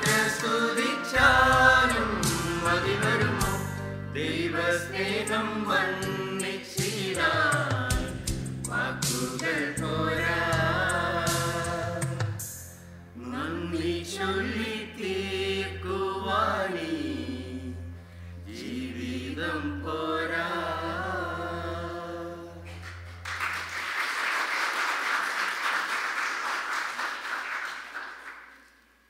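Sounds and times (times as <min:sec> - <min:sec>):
mixed choir singing: 0:00.0 - 0:12.4, 0:13.2 - 0:17.9, 0:18.5 - 0:22.7
audience applause: 0:22.8 - 0:28.8.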